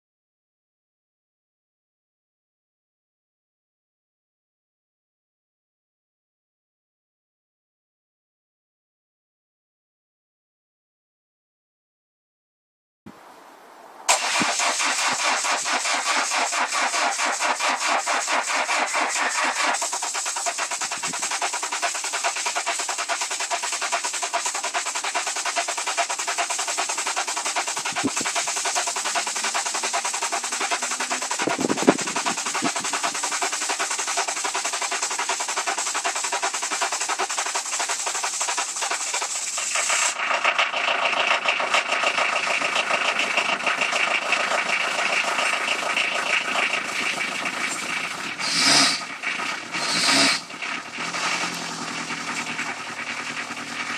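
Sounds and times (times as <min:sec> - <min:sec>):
diesel engine idling: 0:14.1 - 0:53.9.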